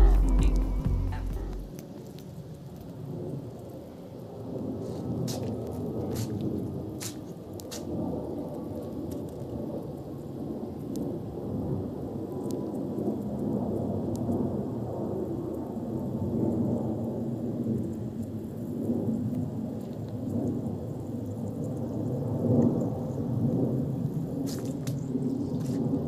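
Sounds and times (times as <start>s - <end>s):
low uneven rumbling: 0.0s - 1.8s.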